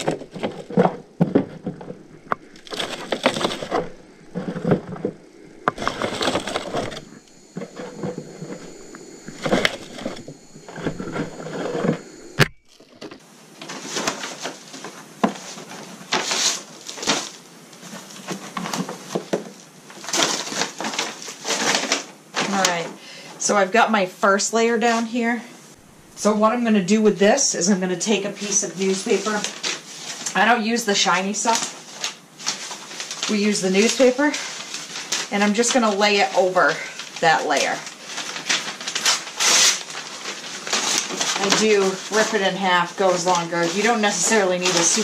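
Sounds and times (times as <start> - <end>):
paper bag rustling: 0.0 - 14.7, 31.8 - 45.0.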